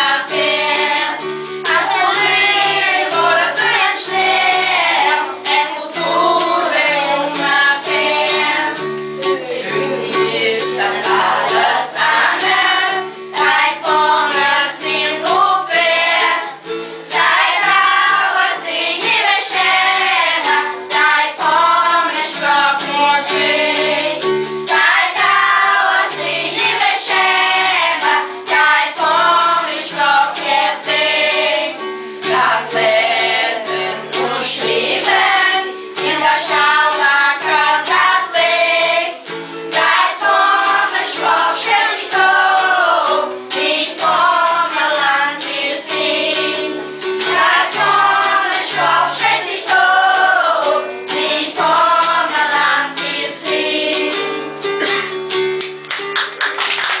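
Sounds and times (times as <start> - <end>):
children singing: 0.0 - 55.1
acoustic guitar: 0.0 - 57.0
woman singing: 9.6 - 16.5.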